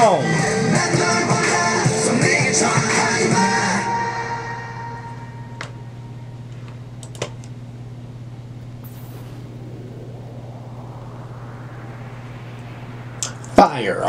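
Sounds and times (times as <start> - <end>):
steady low hum: 8.6 - 14.0.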